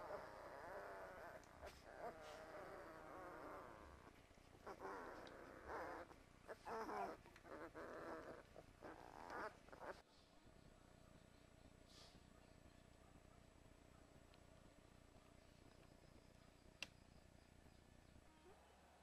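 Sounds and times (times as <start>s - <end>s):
puppies whimpering: 0.0s - 10.0s.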